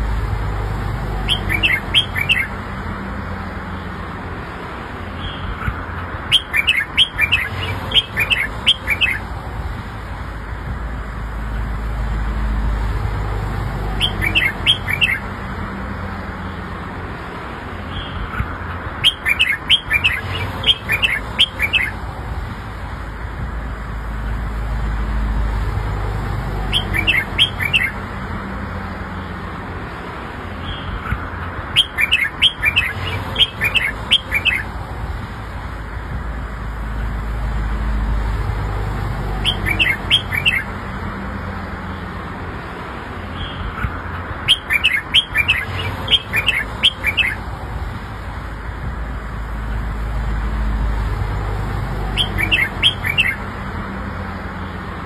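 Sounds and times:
bird singing high notes: 1.2 - 2.6, 6.2 - 9.3, 13.9 - 15.3, 19.0 - 22.0, 26.7 - 28.0, 30.6 - 34.7, 39.4 - 40.7, 44.4 - 47.4, 52.1 - 53.4.

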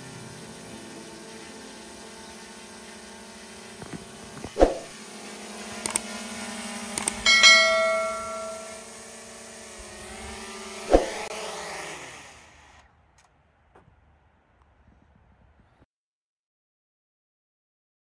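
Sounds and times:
drone propeller hum: 0.0 - 11.5
sharp knocks: 7.3 - 8.8
loud ringing clang: 7.3 - 9.0.

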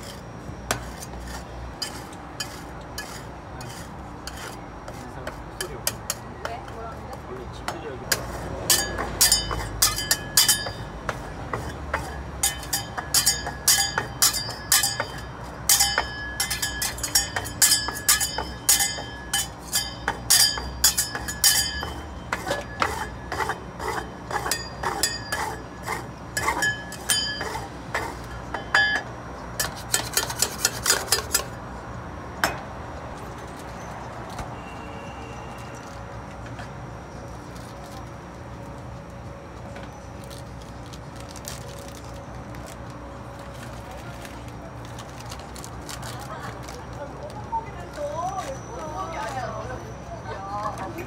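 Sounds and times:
metal spatulas clinking on steel: 8.7 - 10.8, 12.0 - 22.0.

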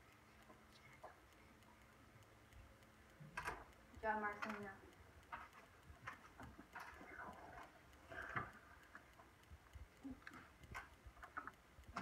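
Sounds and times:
faint taps and clicks: 0.0 - 12.0.

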